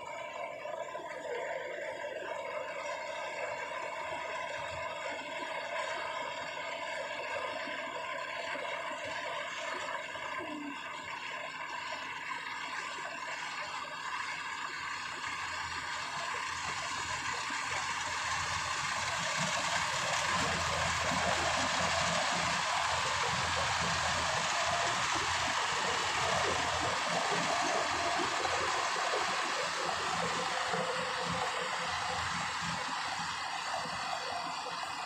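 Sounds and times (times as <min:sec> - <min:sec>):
combine harvester running: 0:12.5 - 0:35.0.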